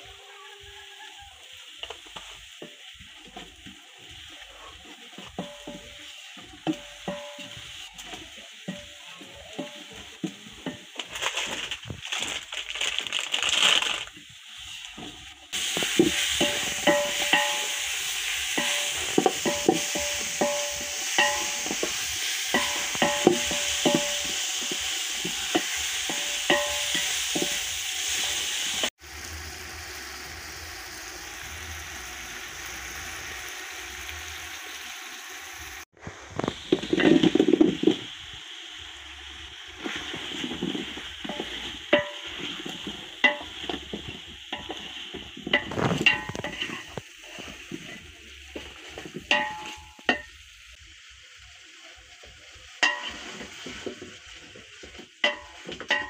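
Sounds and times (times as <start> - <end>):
meat and tomatoes sizzling: 0.0 - 56.0
spices sizzling in a pot: 0.0 - 56.0
wooden spoon knocking on pot: 18.6 - 27.6.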